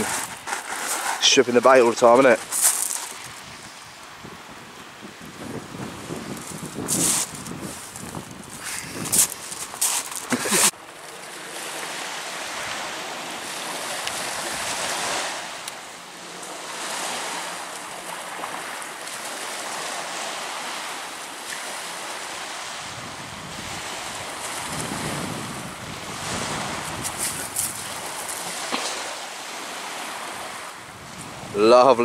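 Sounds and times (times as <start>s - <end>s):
waves breaking on shingle: 0.0s - 3.4s, 5.3s - 23.0s, 23.6s - 31.4s
wind buffeting microphone: 2.3s - 10.7s, 22.7s - 29.2s, 30.0s - 32.0s.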